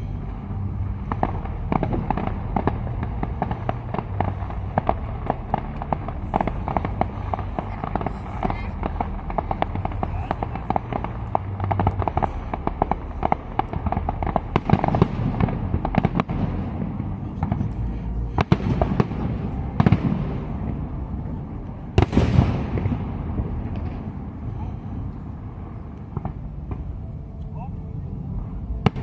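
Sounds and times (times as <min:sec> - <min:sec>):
fireworks cracks and pops: 0:01.0 - 0:16.7.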